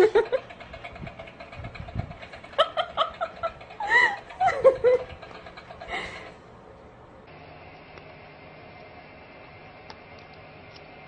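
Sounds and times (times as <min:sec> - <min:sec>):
person laughing: 0:02.5 - 0:05.2.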